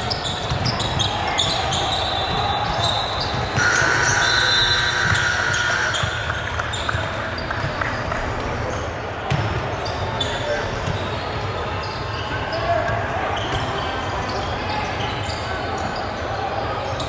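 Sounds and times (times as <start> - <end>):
echoing hall noise: 0.0 - 17.0
basketball bouncing on court: 0.1 - 1.6, 2.2 - 8.5, 9.3 - 9.8, 10.7 - 11.4
high squeaking tones: 3.6 - 6.2.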